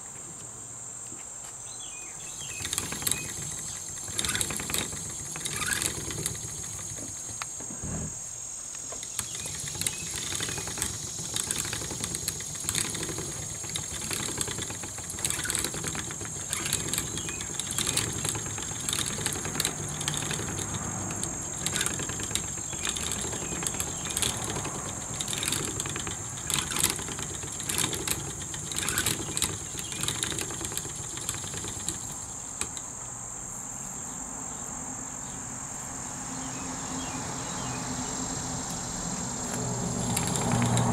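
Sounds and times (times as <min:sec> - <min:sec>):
high insect drone: 0:00.0 - 0:40.9
spinning wheel clicks and knocks: 0:02.3 - 0:07.5, 0:08.9 - 0:32.9, 0:39.9 - 0:40.9.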